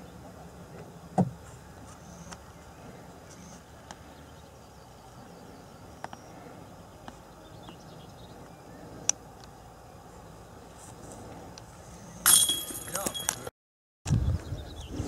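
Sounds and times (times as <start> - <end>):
faint bird chirps: 1.5 - 10.4.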